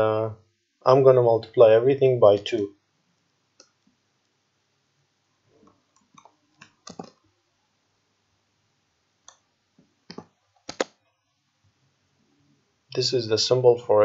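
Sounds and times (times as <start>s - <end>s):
keyboard and mouse clicks: 5.9s - 7.2s, 10.1s - 11.0s.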